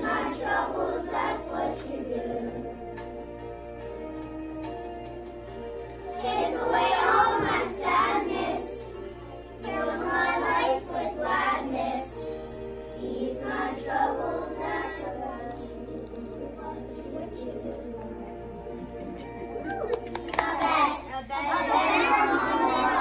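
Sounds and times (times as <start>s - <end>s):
children singing in unison: 0.0s - 3.0s, 6.1s - 9.0s, 9.6s - 18.0s, 20.6s - 23.0s.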